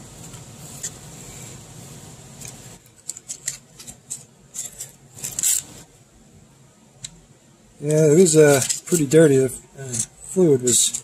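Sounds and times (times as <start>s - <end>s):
low steady hum: 0.0s - 11.0s
paper filter scratching and crackling: 2.3s - 5.9s, 7.8s - 9.3s.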